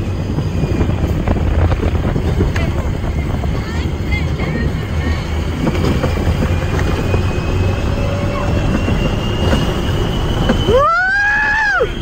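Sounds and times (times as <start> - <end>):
ride vehicle rumbling on track: 0.0 - 12.0
rush of wind: 0.0 - 12.0
faint whine rising in pitch: 6.4 - 12.0.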